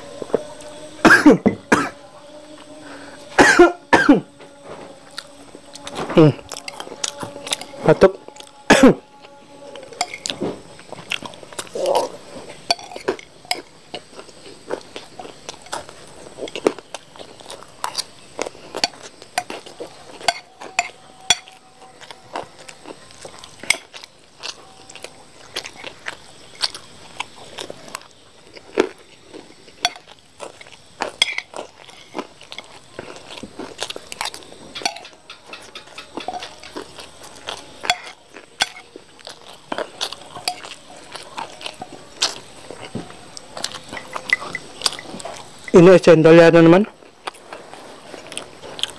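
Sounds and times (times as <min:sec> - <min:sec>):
chewing and crunching: 0:00.0 - 0:48.9
metal spoon scraping a plate: 0:09.7 - 0:10.5, 0:18.8 - 0:21.6, 0:34.6 - 0:37.0.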